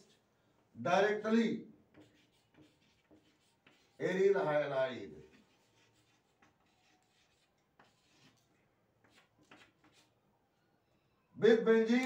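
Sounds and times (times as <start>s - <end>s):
chalk tapping on blackboard: 1.9s - 4.0s, 5.3s - 10.1s.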